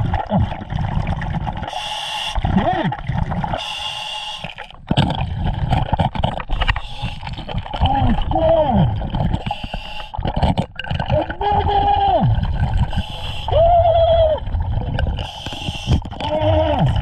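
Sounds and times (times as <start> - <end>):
exhaled bubbles gurgling: 0.0 - 17.0
regulator hissing inhalations: 3.6 - 4.6, 9.5 - 10.2, 12.9 - 13.5, 15.3 - 16.0.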